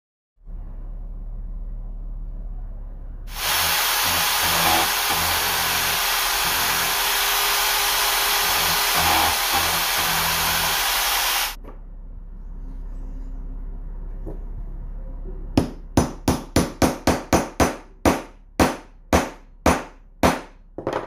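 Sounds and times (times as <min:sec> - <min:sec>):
electric drill drilling into wood: 0:03.3 - 0:11.6.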